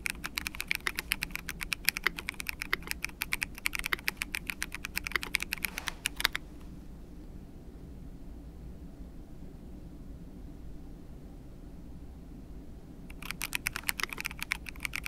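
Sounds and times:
mechanical keyboard key clacks: 0.0 - 6.4, 13.1 - 15.0.

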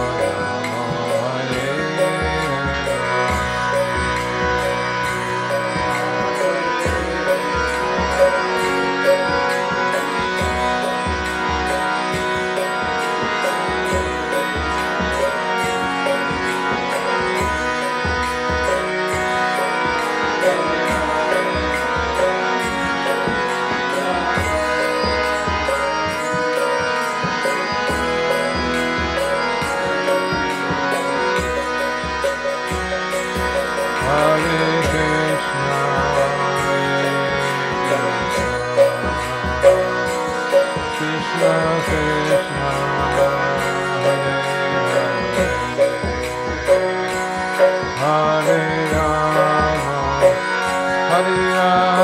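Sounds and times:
harmonium chords: 0.0 - 52.0
small hand cymbals: 0.0 - 52.0
hand drum beat: 20.4 - 37.2, 37.8 - 50.4.

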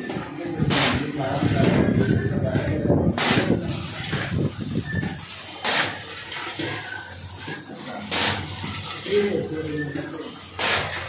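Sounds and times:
packing machine hiss: 3.2 - 9.4, 10.2 - 11.0.

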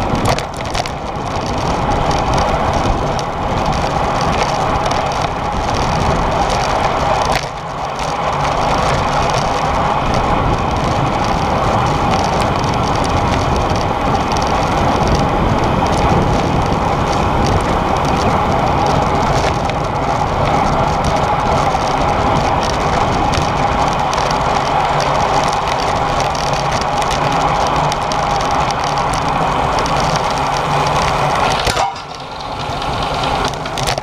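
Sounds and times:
tyre noise on tarmac: 0.0 - 34.0.

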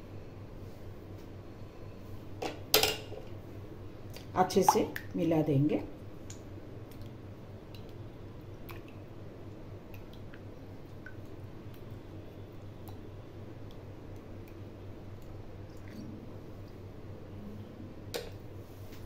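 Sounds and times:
wet squishing of yogurt: 6.3 - 9.2
low hum: 7.6 - 18.8.

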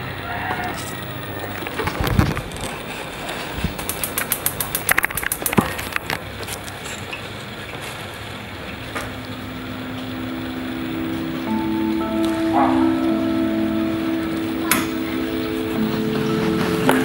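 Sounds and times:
steady background noise: 0.0 - 17.0
quick sharp clicks: 3.8 - 5.8
soft held music notes: 8.7 - 17.0.

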